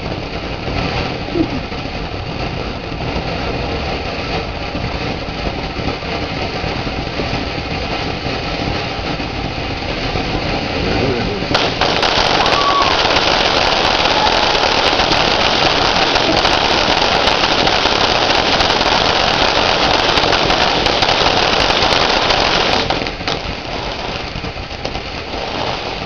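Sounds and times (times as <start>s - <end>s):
firework fountain hissing spray: 0.0s - 26.0s
fine crackles: 10.8s - 26.0s.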